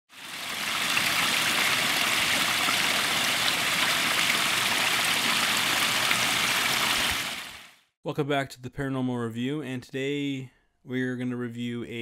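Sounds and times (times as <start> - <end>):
running water rushing: 0.1 - 7.8.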